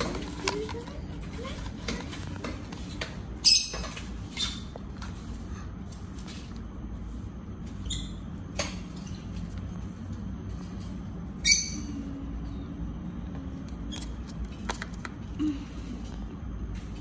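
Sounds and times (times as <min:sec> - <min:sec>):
taps and rustles of handling: 0:00.0 - 0:06.7
steady low hum: 0:00.0 - 0:17.0.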